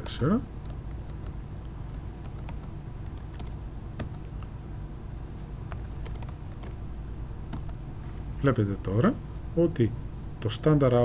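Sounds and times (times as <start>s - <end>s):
keyboard keystroke clicks: 0.1s - 4.4s, 5.7s - 6.8s.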